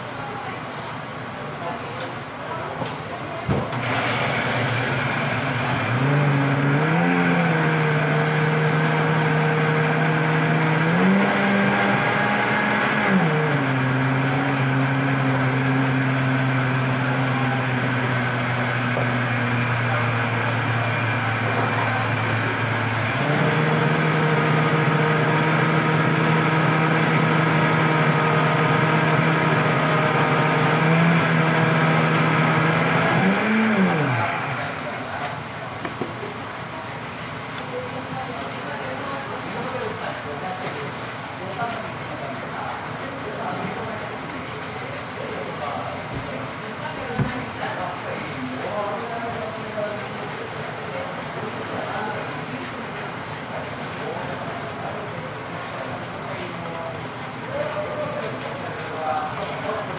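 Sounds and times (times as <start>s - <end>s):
electric blender motor running: 3.7s - 36.4s, 49.7s - 59.9s.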